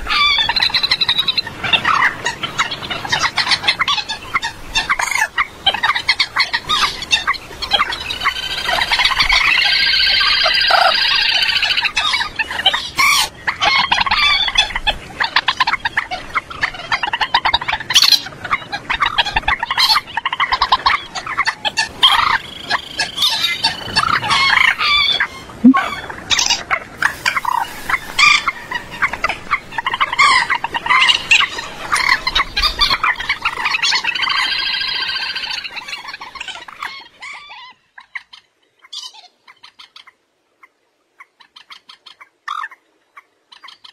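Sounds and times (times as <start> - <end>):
moorhen clucking and cackling: 0.0 - 43.9.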